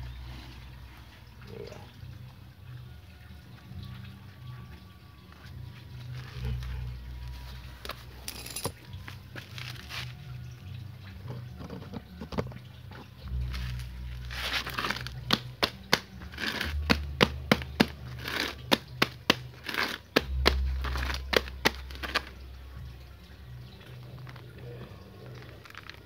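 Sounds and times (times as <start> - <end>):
soil crumbling and tearing: 6.0 - 10.5, 12.9 - 22.6, 23.5 - 26.0.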